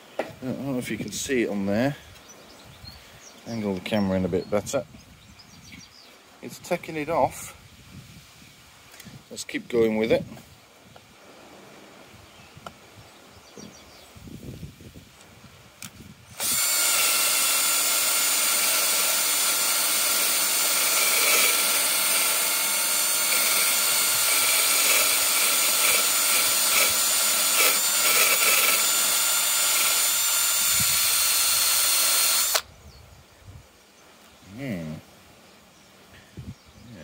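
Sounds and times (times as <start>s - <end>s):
drill spinning wire brush on metal: 16.3s - 32.6s.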